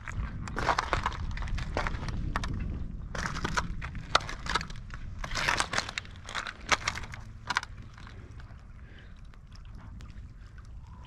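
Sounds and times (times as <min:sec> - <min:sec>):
footsteps crunching on shelly rocks: 0:00.0 - 0:02.6.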